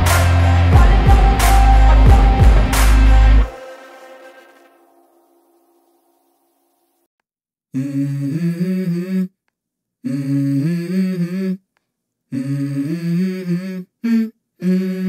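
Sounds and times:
person humming a melody: 0.0 - 4.0, 7.8 - 9.4, 10.0 - 11.6, 12.3 - 15.0.

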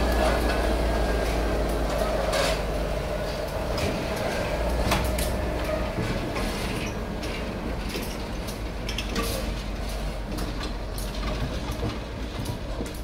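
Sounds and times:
locomotive engine rumble: 0.0 - 13.0
wheels clanking and clicking: 0.0 - 13.0.

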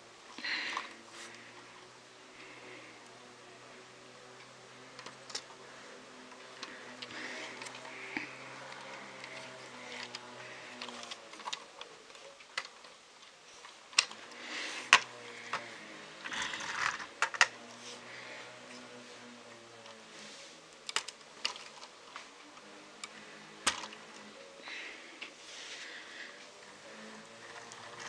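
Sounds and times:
plastic toy bricks clicking: 10.8 - 13.3, 13.9 - 15.6, 16.2 - 17.6, 20.8 - 21.9, 23.0 - 24.2.

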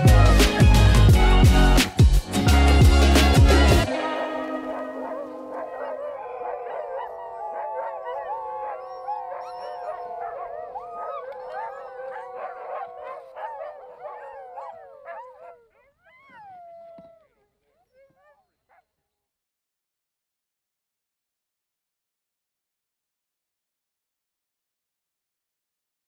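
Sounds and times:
sled dogs howling: 3.7 - 18.5.

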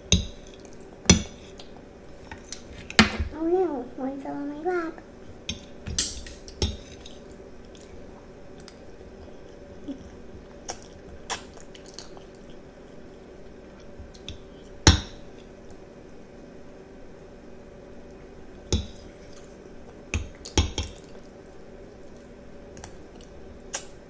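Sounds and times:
child chewing: 0.4 - 2.9, 5.0 - 15.8, 18.9 - 24.0.

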